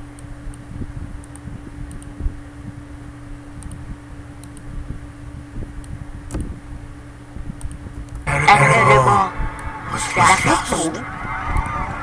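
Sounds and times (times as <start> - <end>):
low fan hum: 0.0 - 12.0
faint mouse clicks: 1.2 - 2.1, 3.6 - 3.8, 4.4 - 4.7, 7.6 - 8.2.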